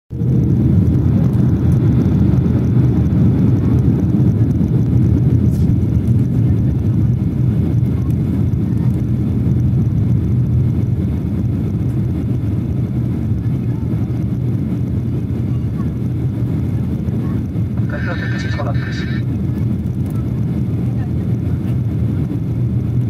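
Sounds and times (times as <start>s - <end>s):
aircraft cabin engine rumble: 0.1s - 23.0s.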